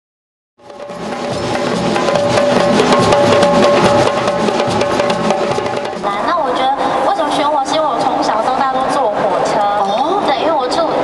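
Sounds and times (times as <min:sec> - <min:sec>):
djembe hand drums playing: 0:00.6 - 0:06.3.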